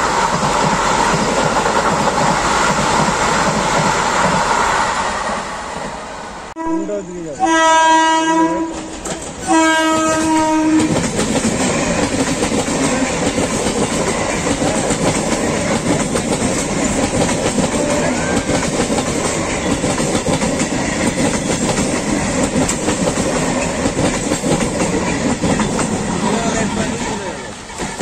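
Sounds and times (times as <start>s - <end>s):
train coaches rumbling past: 0.0s - 28.0s
train horn blast: 6.6s - 11.0s, 17.7s - 18.4s.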